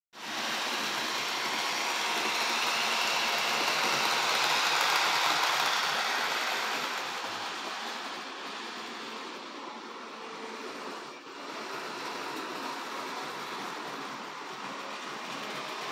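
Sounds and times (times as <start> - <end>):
model locomotive motor: 0.2 - 15.9
model train wheels on rails: 0.2 - 15.9.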